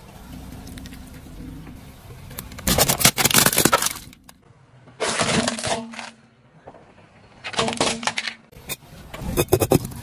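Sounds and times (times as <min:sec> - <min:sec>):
plastic toy cracking under tyre: 0:02.4 - 0:04.4.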